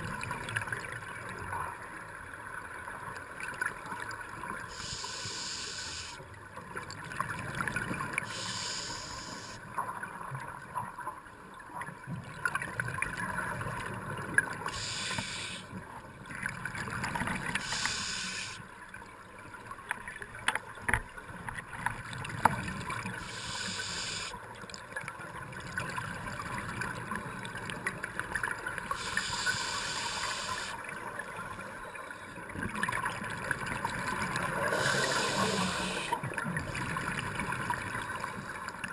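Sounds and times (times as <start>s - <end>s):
regulator hissing inhalation: 4.7s - 6.2s, 8.3s - 9.6s, 14.7s - 15.7s, 17.6s - 18.6s, 23.2s - 24.3s, 29.0s - 30.8s, 34.6s - 36.2s
bubbling exhalations: 34.2s - 36.2s.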